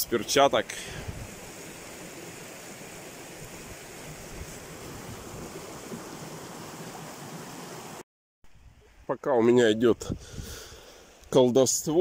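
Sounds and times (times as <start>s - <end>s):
river water rushing: 0.2s - 8.0s.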